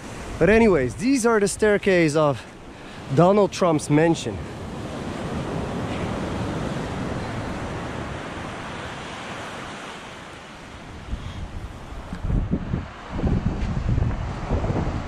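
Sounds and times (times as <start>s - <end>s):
wind buffeting microphone: 0.0s - 3.2s, 10.7s - 15.0s
ocean surf breaking on beach: 0.0s - 15.0s.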